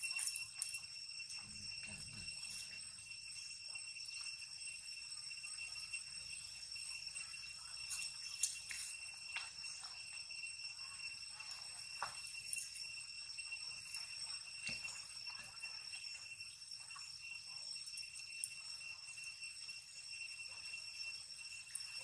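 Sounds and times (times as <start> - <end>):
insects droning: 0.0 - 22.0.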